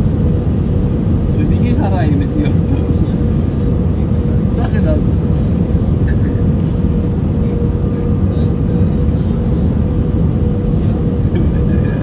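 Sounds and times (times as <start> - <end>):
aircraft engines and airflow rumble: 0.0 - 12.0.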